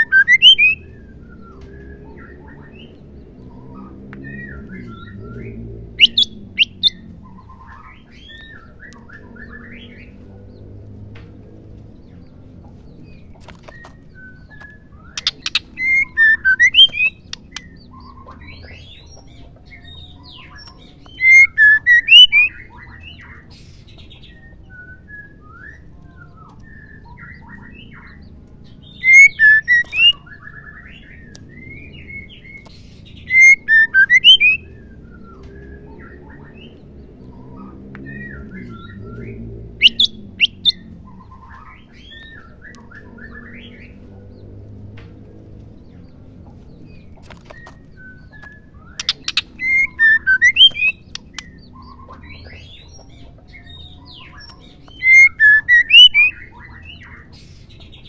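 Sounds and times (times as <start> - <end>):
bird chirps and whistles: 0.0 - 2.9, 4.2 - 7.0, 13.7 - 18.2, 20.4 - 23.1, 28.9 - 32.4, 33.1 - 36.7, 38.1 - 40.8, 47.6 - 52.5, 53.7 - 57.1
bird calling sharp notes: 0.0 - 3.0, 4.3 - 10.1, 13.8 - 19.0, 20.4 - 23.0, 28.9 - 32.4, 33.2 - 35.2, 38.1 - 44.0, 47.6 - 52.8, 54.2 - 56.7.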